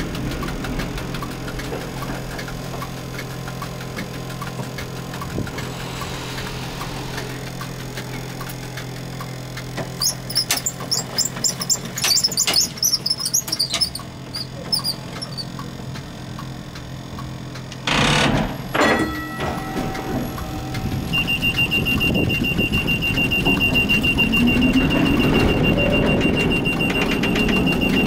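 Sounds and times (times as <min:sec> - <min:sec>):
tram steady low hum: 0:00.0 - 0:28.0
short high squeaks: 0:10.0 - 0:15.6.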